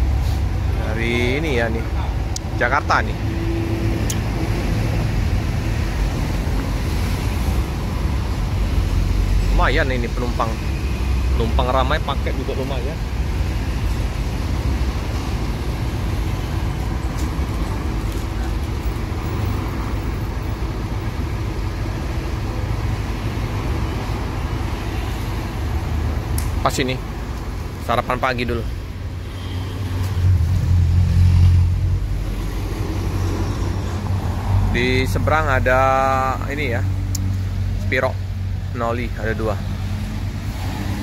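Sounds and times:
motor vehicles rumbling: 0.0 - 41.0
road traffic passing: 0.0 - 41.0.

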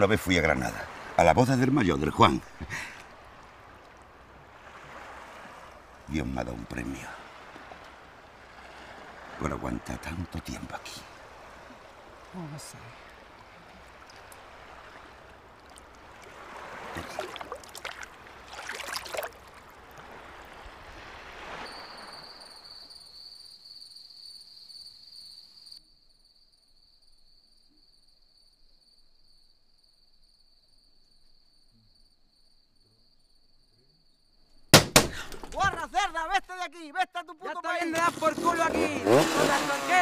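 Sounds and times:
crickets chirping: 0.0 - 40.0
water sloshing and splashing: 0.3 - 21.7.

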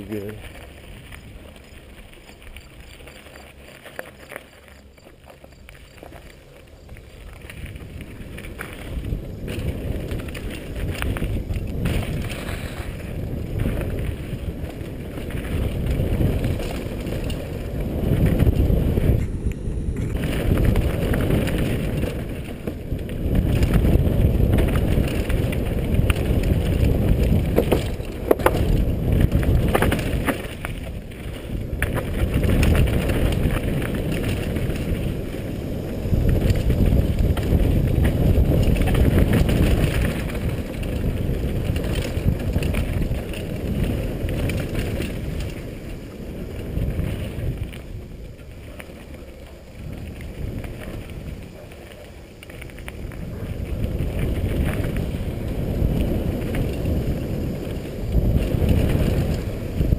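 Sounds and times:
bike tyres rumbling over dirt: 0.0 - 59.9
wind rush on camera: 0.0 - 59.9
bike knocks over bumps: 23.3 - 31.0.

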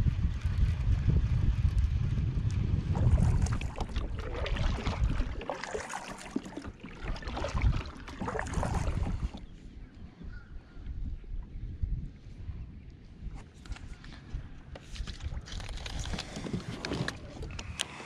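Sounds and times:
wind on microphone: 0.0 - 18.0
paddle splashing in water: 2.9 - 9.5.

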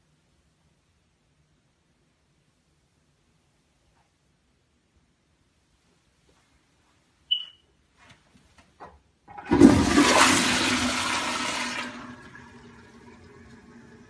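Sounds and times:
short high squeak: 7.3 - 7.7
toilet flushing: 9.3 - 14.0
toilet tank refilling hiss: 9.3 - 14.0.

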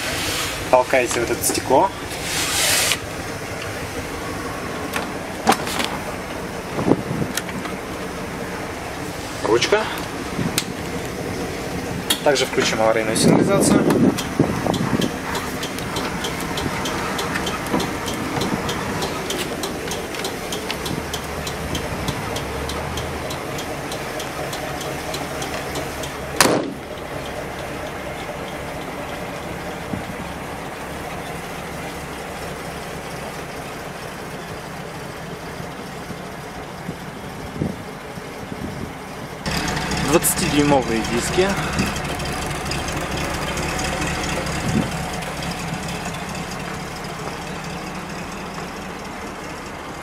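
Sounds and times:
bus engine idling: 0.0 - 50.0
hazard flasher ticking: 14.1 - 29.8
sharp bang: 26.4 - 26.8.

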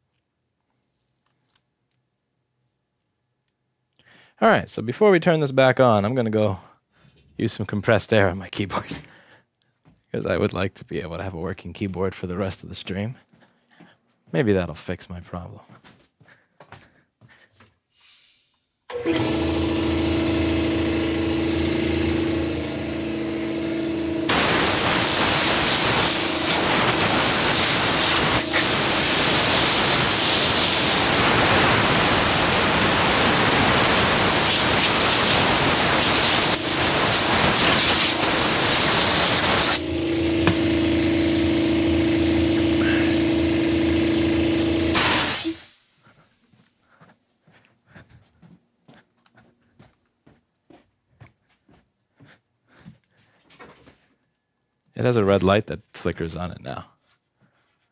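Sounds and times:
blower motor humming: 18.9 - 49.0
loud rush of air: 24.3 - 39.8.

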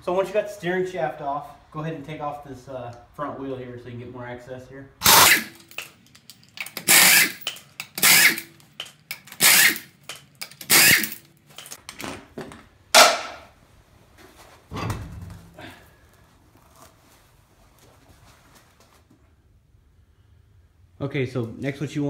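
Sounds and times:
pneumatic impact wrench bursts: 5.0 - 5.9, 6.6 - 11.2.

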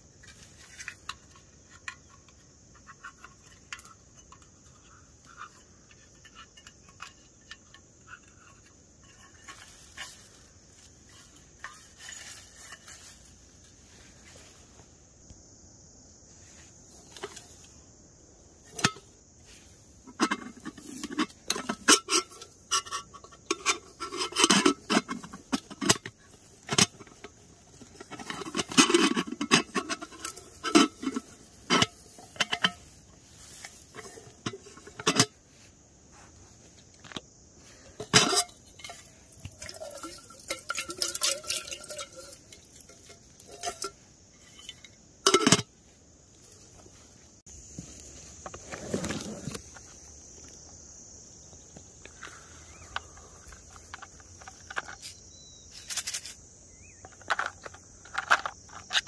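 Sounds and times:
cookware knocking and clinking: 39.6 - 43.9.

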